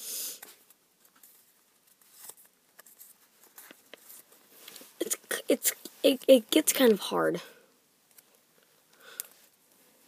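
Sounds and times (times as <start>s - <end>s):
paper rustling: 0.4s - 5.0s.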